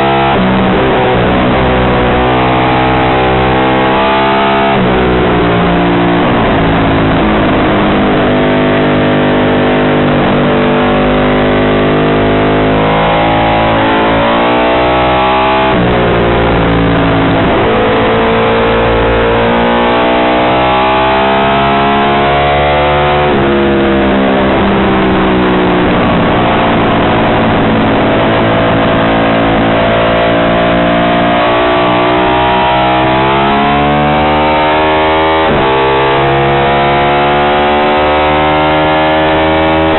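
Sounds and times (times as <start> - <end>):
motorcycle engine at high revs: 0.0 - 39.9.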